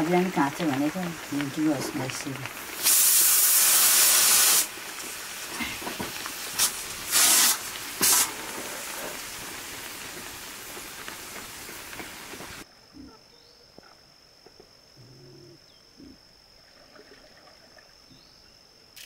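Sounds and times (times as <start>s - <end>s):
loud hissing bursts: 0.0s - 12.6s
faint steady hiss: 0.0s - 19.0s.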